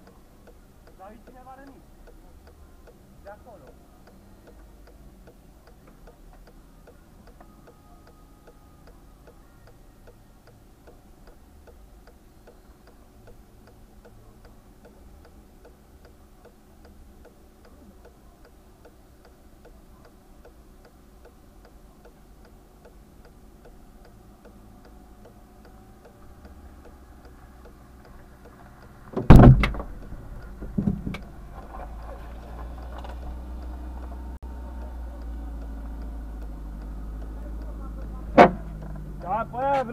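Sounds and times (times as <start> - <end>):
hazard light flasher ticking: 0.0 - 39.9
loud bangs: 29.2 - 30.0.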